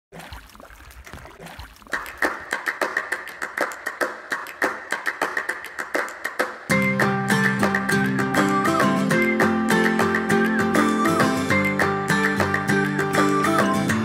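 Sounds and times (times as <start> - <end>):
water noise: 0.1 - 14.0
acoustic guitar: 6.7 - 14.0.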